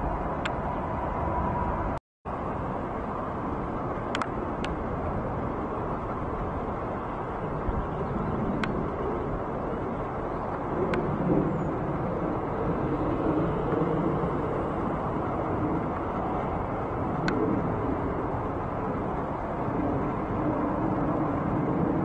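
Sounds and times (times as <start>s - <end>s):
jet airliner rumble overhead: 0.0s - 22.0s
faint sharp ticks: 4.1s - 4.8s.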